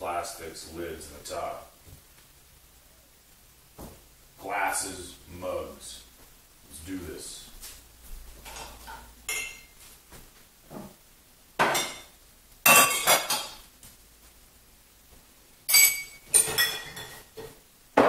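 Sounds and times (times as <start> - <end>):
glasses and mugs clinking: 9.3 - 9.7, 12.7 - 13.6, 15.7 - 17.5.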